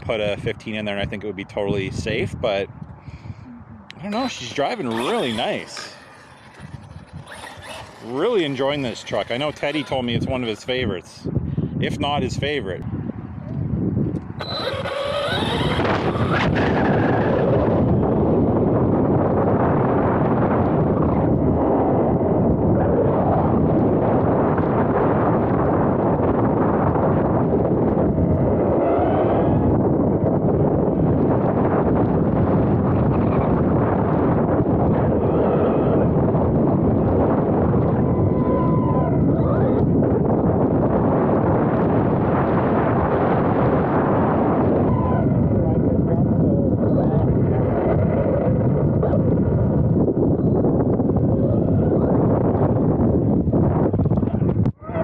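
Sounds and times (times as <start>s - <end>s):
wind on microphone: 0.0s - 55.0s
electric motor whine: 4.5s - 10.6s, 14.4s - 16.6s
tyres rumbling on asphalt: 14.4s - 18.7s.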